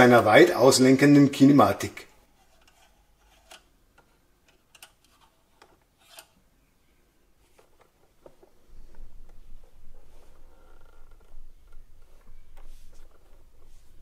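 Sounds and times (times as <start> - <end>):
small clicks of model handling: 2.5 - 6.4.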